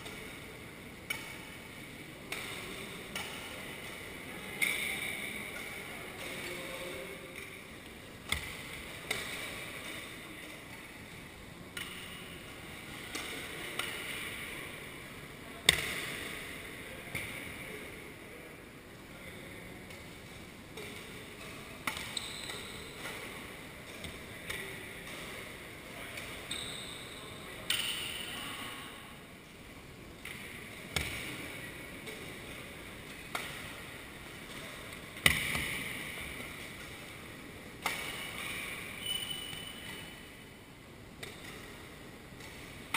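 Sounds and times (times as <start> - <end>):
rackets hitting shuttlecock: 2.2 - 4.0, 8.2 - 10.2, 11.8 - 12.3, 13.1 - 14.7, 20.8 - 25.5, 30.2 - 37.0, 37.7 - 40.2, 41.2 - 42.9.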